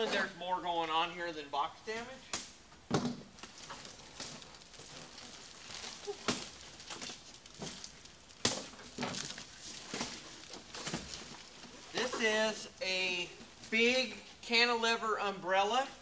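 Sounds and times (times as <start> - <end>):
cardboard scraping and rustling: 3.4 - 12.4.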